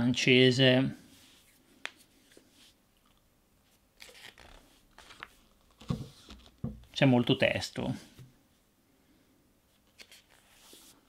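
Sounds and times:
paper pages rustling: 3.7 - 6.6, 9.8 - 11.0.

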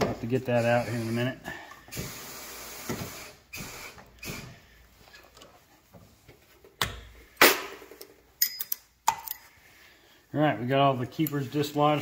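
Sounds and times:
soft handling noise: 4.9 - 6.8.

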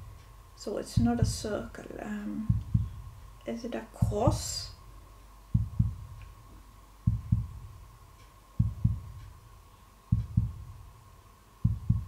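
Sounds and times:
heartbeat thumps: 0.0 - 3.4, 4.0 - 12.0
faint high hum: 0.0 - 12.0.

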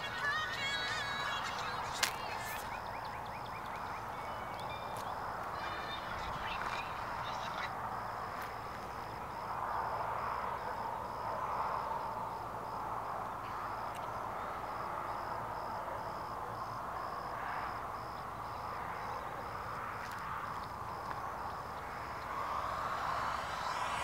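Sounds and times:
insect chirping: 0.0 - 24.0
steady rushing noise: 19.4 - 24.0.

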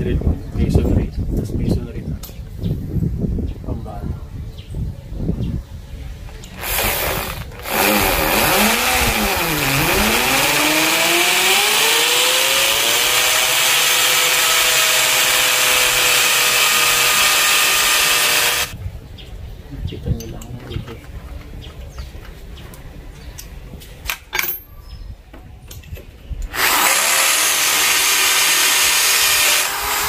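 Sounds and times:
hammer drill boring into wall: 6.4 - 18.8, 26.5 - 30.0.

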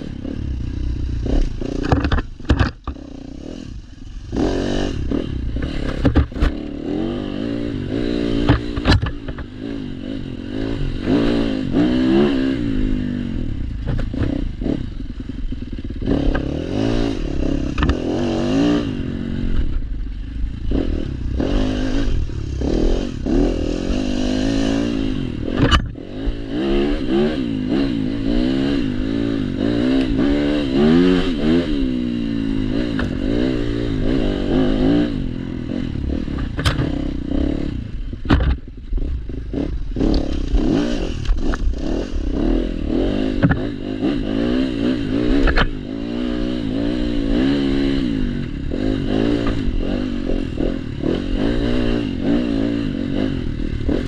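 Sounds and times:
dirt bike engine revving: 0.0 - 54.0
knocks from bike over bumps: 1.4 - 3.0, 5.6 - 6.6, 8.3 - 9.5, 13.8 - 14.4, 25.5 - 26.0, 36.3 - 37.0, 38.2 - 39.1, 43.3 - 43.8.

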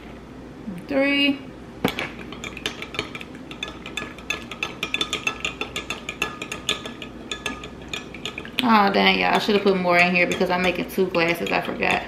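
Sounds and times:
spoon clinking against glass: 2.4 - 8.5.

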